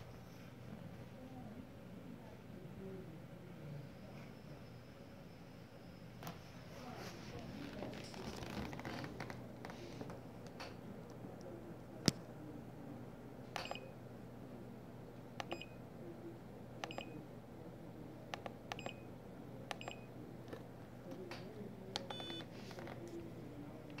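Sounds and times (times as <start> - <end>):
push buttons clicking: 16.8 - 17.1, 18.3 - 19.0, 22.0 - 22.5.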